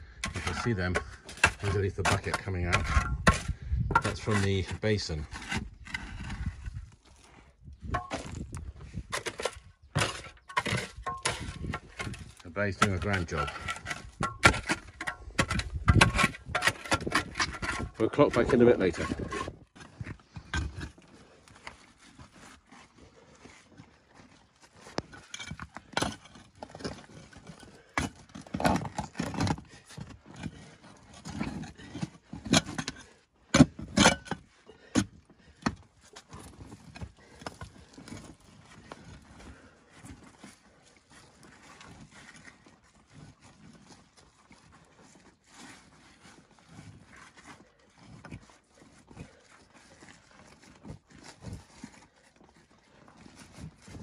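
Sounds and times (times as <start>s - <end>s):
hands scraping soil: 0.0s - 54.0s.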